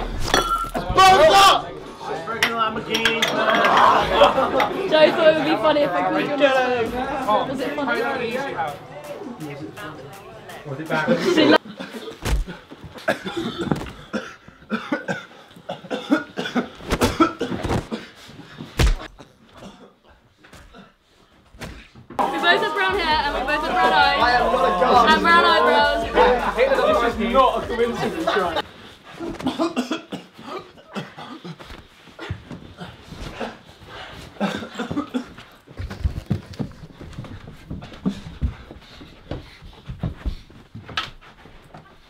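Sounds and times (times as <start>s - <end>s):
person coughing: 13.0s - 17.7s, 29.2s - 31.6s
heavy thuds: 18.7s - 19.2s
strained vocal sounds: 22.4s - 28.6s.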